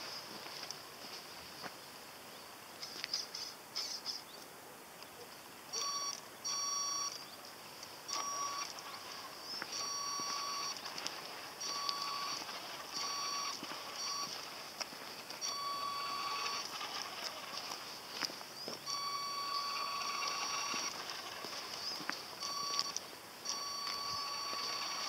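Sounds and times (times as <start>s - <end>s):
electric motor whining: 8.1s - 25.0s.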